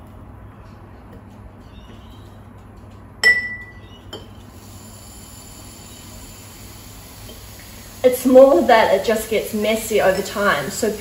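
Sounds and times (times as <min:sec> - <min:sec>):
glass jar clinking: 0:03.2 - 0:04.3.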